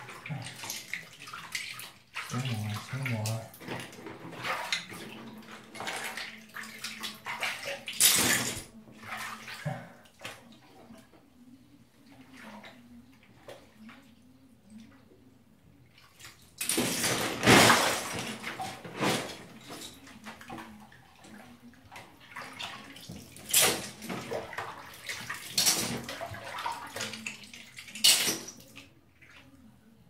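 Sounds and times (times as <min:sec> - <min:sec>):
hands splashing in bathtub water: 0:00.0 - 0:11.0, 0:15.9 - 0:29.4.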